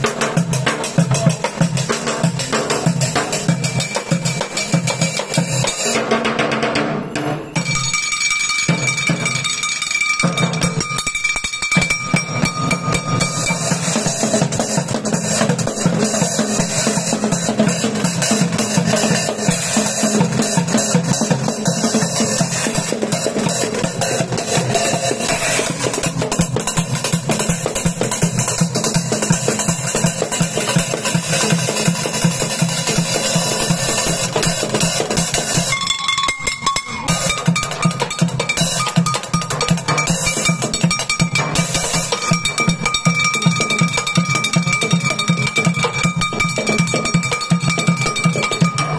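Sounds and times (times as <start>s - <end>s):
junk percussion beat: 0.0s - 48.9s.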